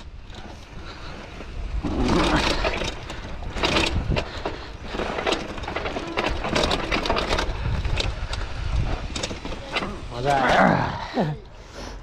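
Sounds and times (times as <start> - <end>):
tyres on dirt and stones: 0.0 - 12.0
bike rattling knocks: 1.8 - 10.2.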